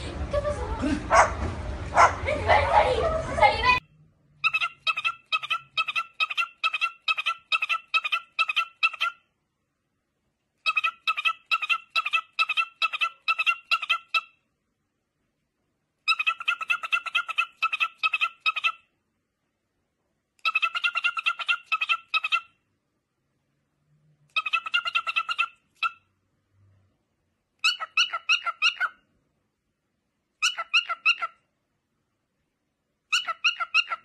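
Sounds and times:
cockatiel chirping: 0:04.4 - 0:09.2, 0:10.6 - 0:14.3, 0:16.1 - 0:18.8, 0:20.4 - 0:22.5, 0:24.3 - 0:26.0, 0:27.6 - 0:29.0, 0:30.4 - 0:31.4, 0:33.1 - 0:34.0.

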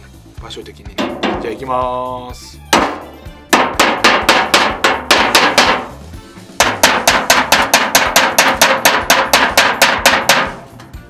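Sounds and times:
hammer striking metal punch: 0:01.0 - 0:01.8, 0:02.7 - 0:06.0, 0:06.6 - 0:10.9.

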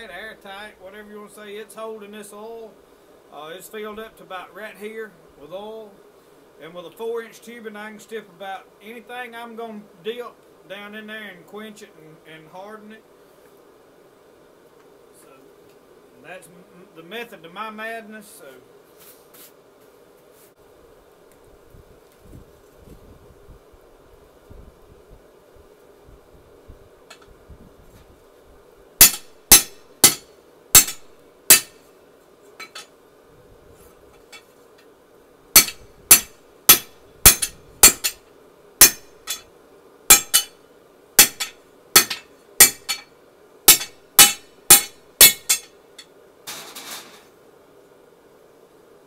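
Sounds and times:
hammer ringing on anvil: 0:29.0 - 0:30.2, 0:40.1 - 0:40.5, 0:41.2 - 0:43.0, 0:43.7 - 0:45.7.

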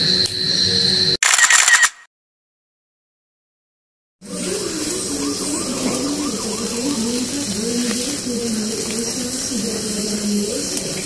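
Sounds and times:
indistinct wavering voice: 0:04.2 - 0:11.0
steady high hiss: 0:04.2 - 0:11.0.

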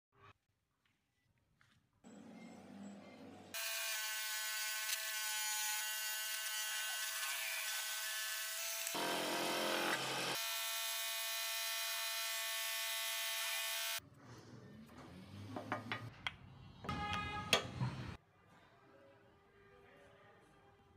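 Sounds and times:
bandsaw cutting wood: 0:03.6 - 0:14.0.

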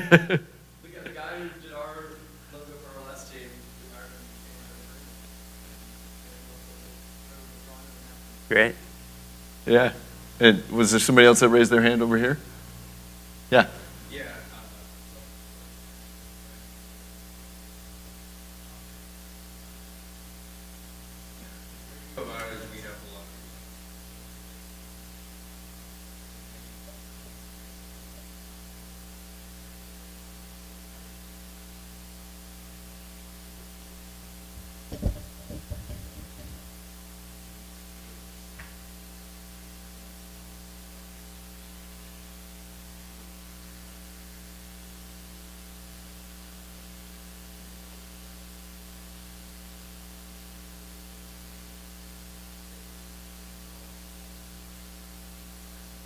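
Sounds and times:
electrical mains hum: 0:00.0 - 0:56.0
dull low thumps: 0:34.5 - 0:36.8.

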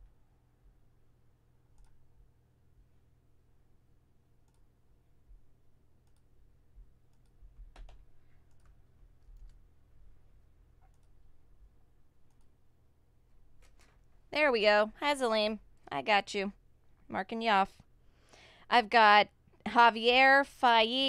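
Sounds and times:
low steady hum: 0:00.0 - 0:21.0
faint clicks: 0:01.7 - 0:02.0, 0:04.4 - 0:04.8, 0:06.0 - 0:06.3, 0:07.1 - 0:09.6, 0:10.8 - 0:11.2, 0:12.2 - 0:12.6.

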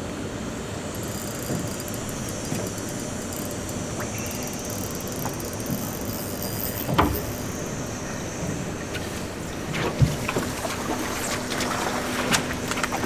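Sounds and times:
boat motor idling: 0:00.7 - 0:13.0.

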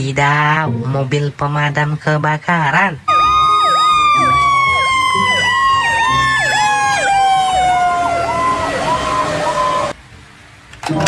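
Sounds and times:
siren wailing: 0:03.1 - 0:10.0
siren yelping: 0:03.1 - 0:10.0.

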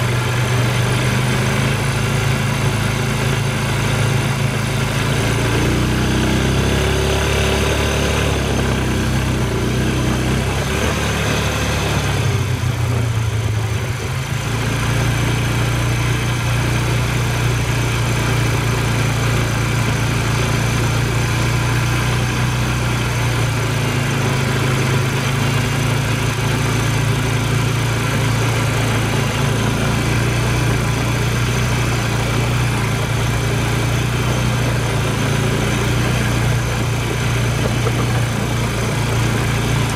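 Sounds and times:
engine droning: 0:00.0 - 0:39.9.

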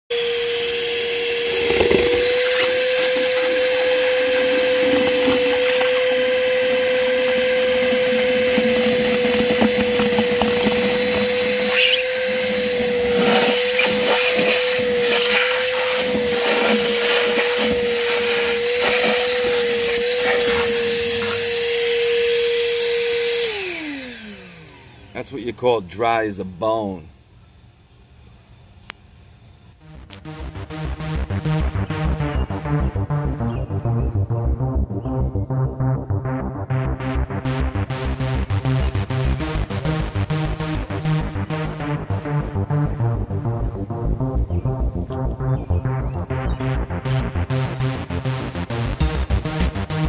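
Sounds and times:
shop vacuum whining: 0:00.1 - 0:33.4, 0:37.0 - 0:44.5
hose sucking water crackling: 0:01.5 - 0:21.7.

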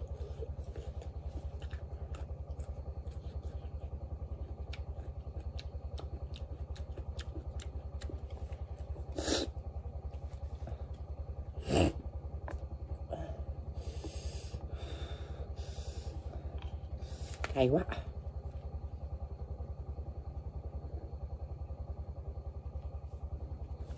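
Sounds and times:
small engine chugging: 0:00.0 - 0:23.9.

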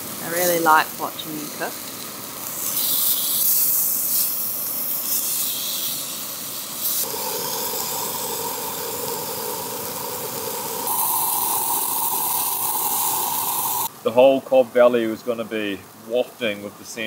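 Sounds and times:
meat sizzling in frying pan: 0:00.0 - 0:14.0
steady hum: 0:07.0 - 0:14.0.

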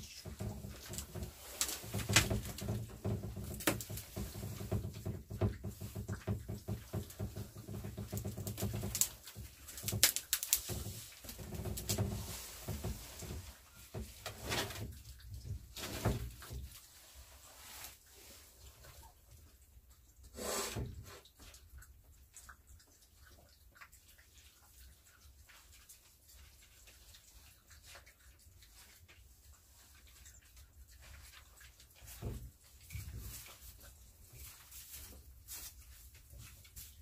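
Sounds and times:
puppies chewing and lapping: 0:00.0 - 0:37.0.

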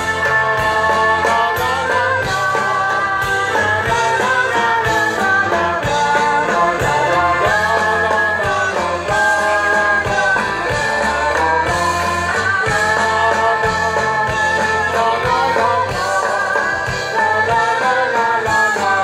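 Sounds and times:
drums keeping a beat: 0:00.0 - 0:19.0
live rock band playing: 0:00.0 - 0:19.0.

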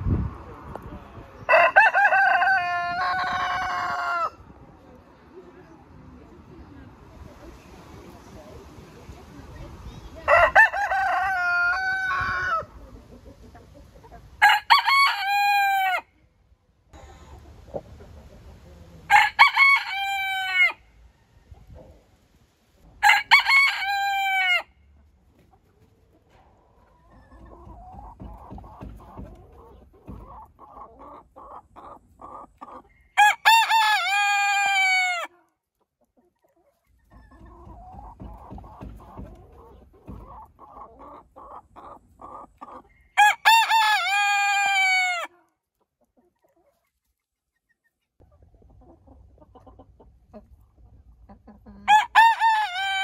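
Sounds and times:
hens clucking: 0:00.7 - 0:16.0, 0:16.9 - 0:22.2, 0:22.8 - 0:53.0
roosters crowing: 0:01.4 - 0:04.5, 0:10.2 - 0:12.8, 0:14.4 - 0:16.1, 0:19.0 - 0:21.4, 0:23.0 - 0:24.8, 0:32.2 - 0:35.3, 0:43.1 - 0:45.3, 0:51.8 - 0:53.0.

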